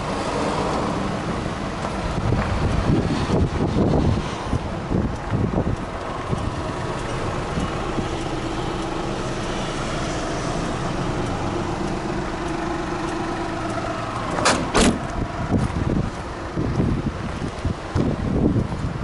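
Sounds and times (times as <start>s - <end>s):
truck engine idling: 0.0s - 19.0s
short bumps: 11.8s - 18.1s.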